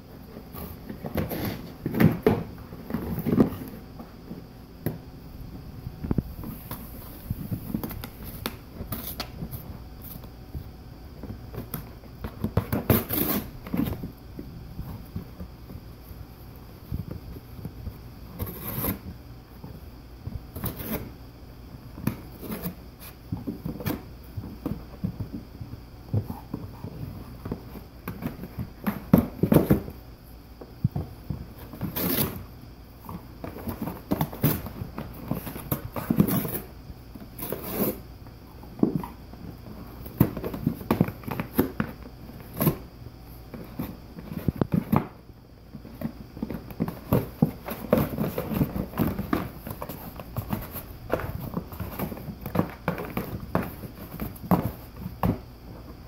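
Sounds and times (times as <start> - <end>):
dog tearing cardboard: 12.5 - 13.9, 18.3 - 19.1, 31.7 - 32.4.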